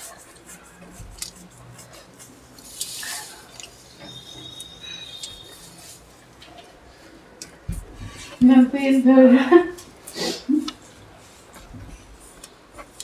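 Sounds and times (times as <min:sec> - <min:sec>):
thin high squeak: 0:03.9 - 0:06.0.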